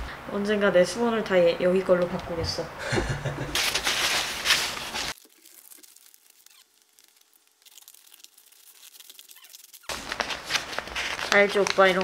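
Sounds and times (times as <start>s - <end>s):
wrapping paper crinkling: 3.6s - 12.0s.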